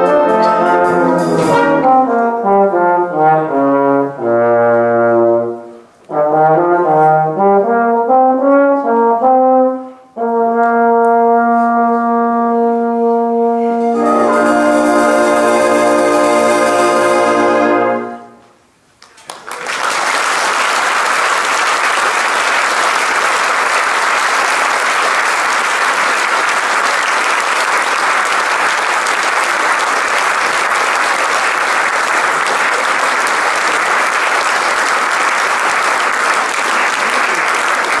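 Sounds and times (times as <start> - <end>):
brass band chord: 0.0 - 18.5
audience applause: 19.0 - 38.0.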